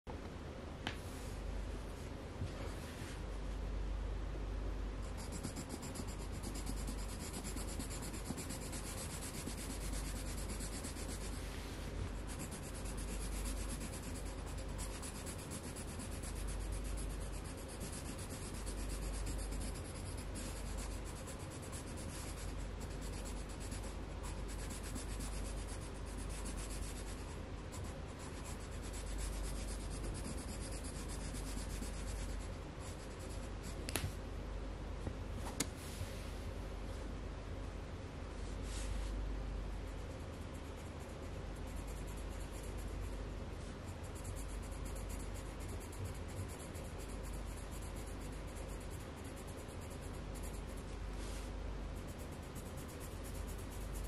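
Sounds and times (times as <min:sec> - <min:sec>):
colored pencil shading on paper: 0:05.0 - 0:33.8, 0:39.8 - 0:54.0.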